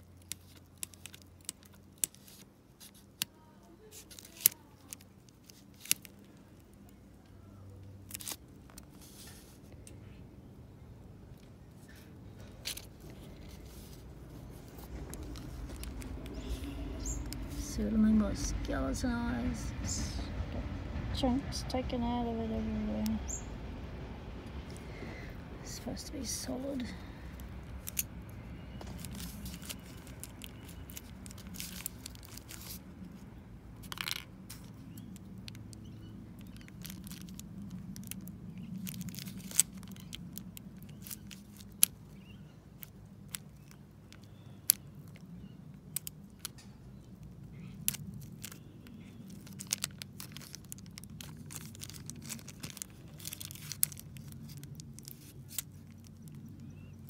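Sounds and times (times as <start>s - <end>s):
plastic bag crinkling: 0.0s - 7.1s, 7.9s - 9.7s, 11.8s - 17.7s, 26.0s - 57.0s.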